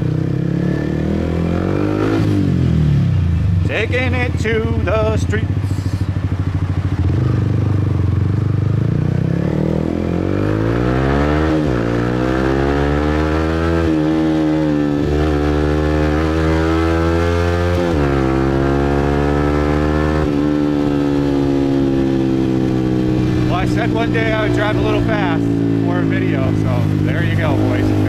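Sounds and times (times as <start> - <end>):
motorbike engine revving: 0.0 - 28.0.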